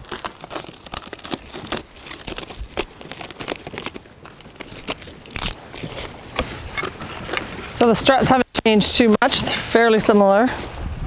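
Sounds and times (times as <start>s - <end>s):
plastic wrapping crinkling and tearing: 0.0s - 7.5s.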